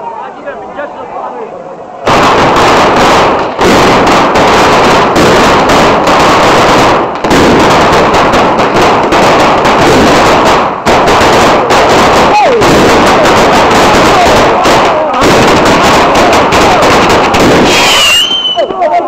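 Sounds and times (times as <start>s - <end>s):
firecracker barrage: 2.0s - 19.0s.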